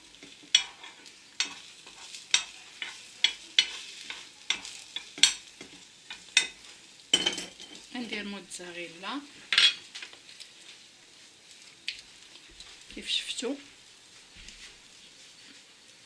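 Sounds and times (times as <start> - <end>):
egg sizzling: 0.0 - 16.0
metal spoon scraping frying pan: 0.1 - 7.9, 9.5 - 9.9.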